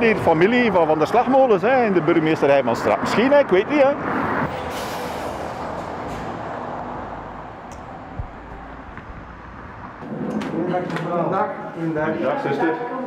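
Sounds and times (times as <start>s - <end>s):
road traffic rush: 0.0s - 12.4s
soft low thump: 7.7s - 10.0s.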